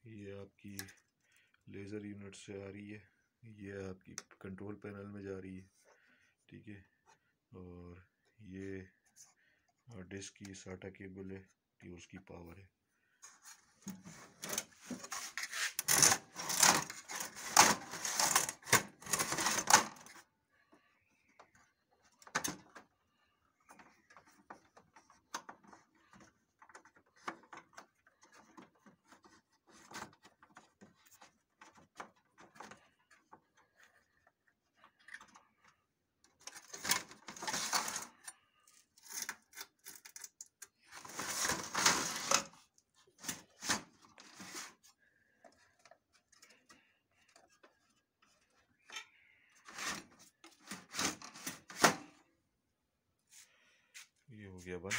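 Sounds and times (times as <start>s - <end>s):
hands handling plastic and metal: 13.2s - 20.3s, 21.1s - 52.2s.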